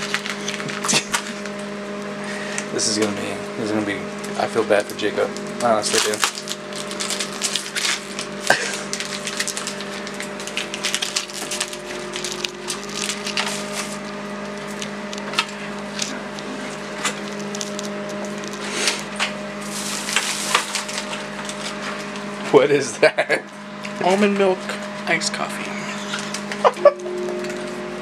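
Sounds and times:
plastic wrapper crinkling: 0.0 - 1.5, 4.4 - 22.3
plastic bag rustling: 0.0 - 1.6, 4.4 - 22.4
steady low hum: 0.0 - 28.0.

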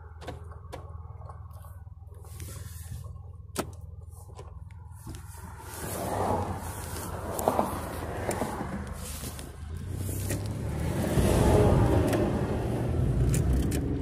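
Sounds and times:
car engine hum: 0.0 - 14.0
rushing noise: 5.4 - 12.7.

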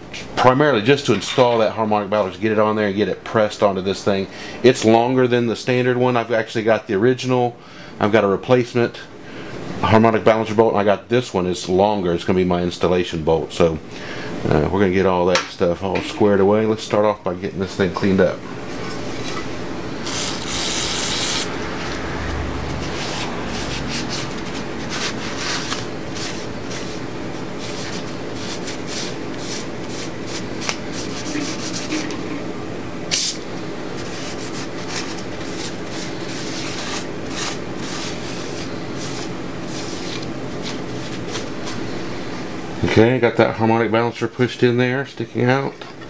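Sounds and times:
paper towel scrubbing metal: 20.0 - 21.5, 22.7 - 32.2, 34.0 - 41.8
loud hiss: 33.1 - 33.5.

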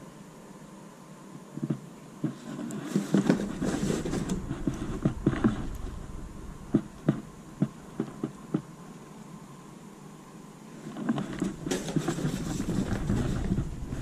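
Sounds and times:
cardboard and caps rustling: 1.6 - 5.7, 10.9 - 14.0
sharp taps and knocks: 6.7 - 8.7.

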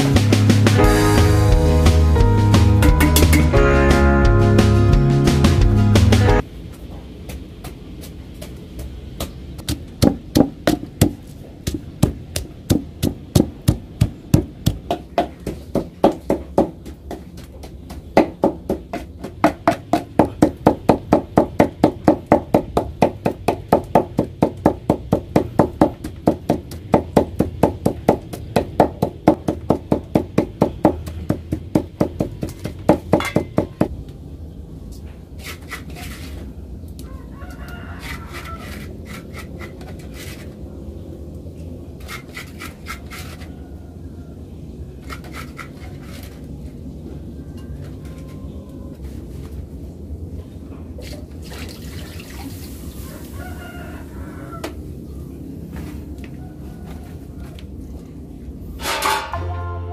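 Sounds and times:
stone pestle pounding in mortar: 9.2 - 33.9.

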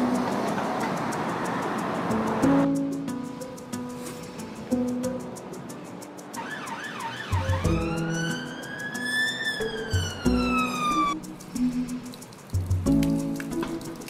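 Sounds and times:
emergency vehicle siren: 6.4 - 11.2
plucked guitar and bass music: 10.0 - 14.0.

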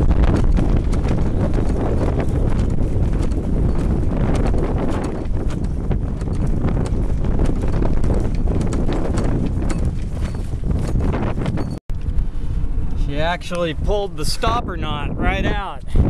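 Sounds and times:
sail flogging in the wind: 0.0 - 16.0
wind buffeting microphone: 0.0 - 16.0.

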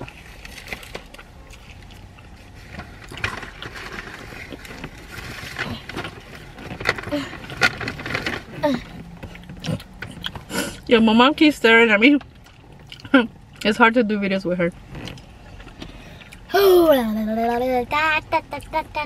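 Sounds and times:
person chewing food: 0.0 - 3.8, 7.4 - 10.9, 12.4 - 13.6.

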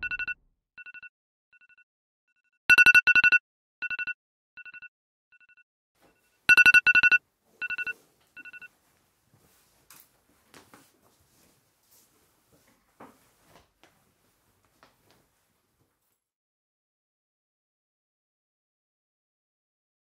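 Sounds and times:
phone alarm beeping: 0.0 - 1.8, 2.7 - 8.7.

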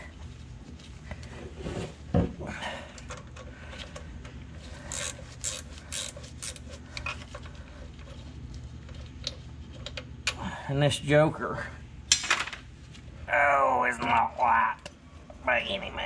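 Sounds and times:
steady low hum: 0.0 - 16.0
wrench clicking and scraping: 4.8 - 7.2.

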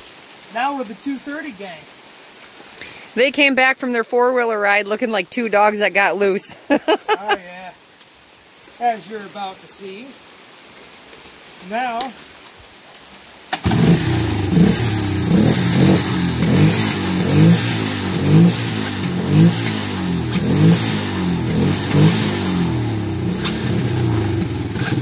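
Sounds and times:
quad engines revving: 13.6 - 25.0.

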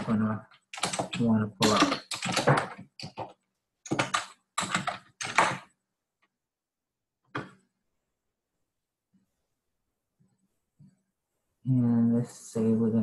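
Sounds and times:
typing on a computer keyboard: 0.0 - 5.7.

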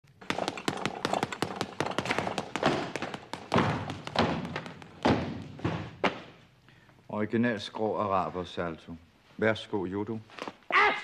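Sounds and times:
fists hitting punching ball: 0.2 - 6.2
heavy thuds onto mats: 0.2 - 6.4.

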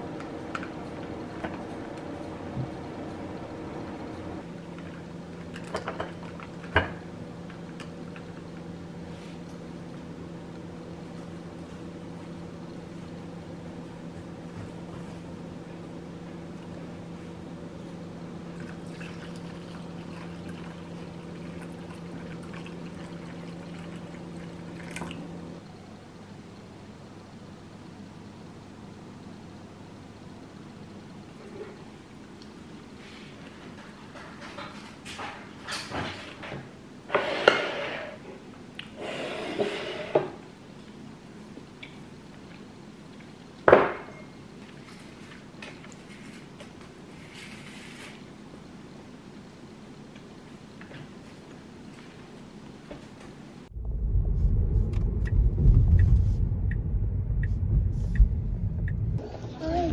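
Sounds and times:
steady low hum: 0.0 - 33.6, 48.3 - 59.9
water pouring into bowls: 18.6 - 25.3.

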